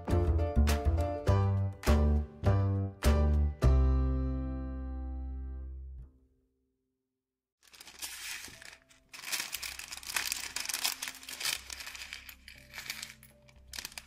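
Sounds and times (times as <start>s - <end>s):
plastic bag crinkling: 7.6s - 14.0s
plastic pieces clicking on table: 7.7s - 14.0s.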